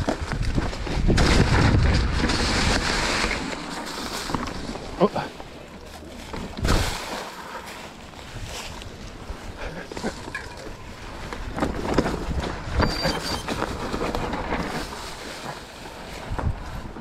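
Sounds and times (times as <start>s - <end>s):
wind rumble on microphone: 0.0s - 3.5s, 8.0s - 17.0s
bike knocking and rattling: 0.0s - 17.0s
bike tyres rolling on dirt: 0.0s - 17.0s.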